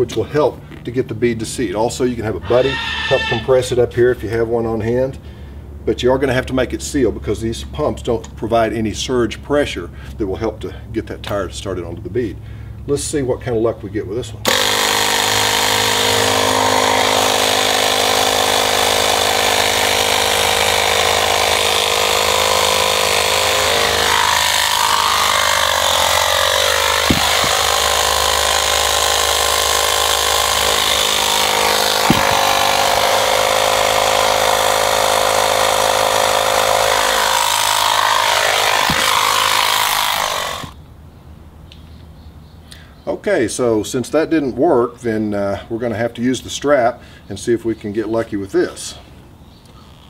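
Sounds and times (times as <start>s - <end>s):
sharp knocks: 14.5s - 34.0s, 34.6s - 40.8s
air compressor running: 14.5s - 40.8s.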